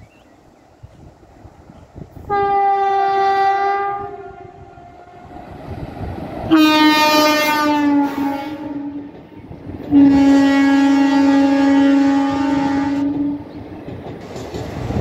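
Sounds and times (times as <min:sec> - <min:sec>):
train rumble: 0:00.0 - 0:15.0
locomotive horn blasts: 0:02.3 - 0:05.3, 0:06.5 - 0:09.1, 0:09.9 - 0:13.4.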